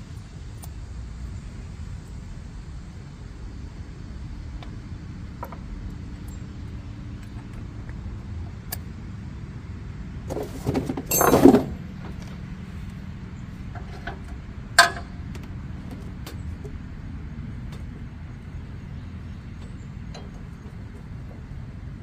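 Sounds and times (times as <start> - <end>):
steady low hum: 0.0 - 22.0
harsh scraping metal rattle: 10.3 - 12.1
light metal clicks: 19.5 - 21.7.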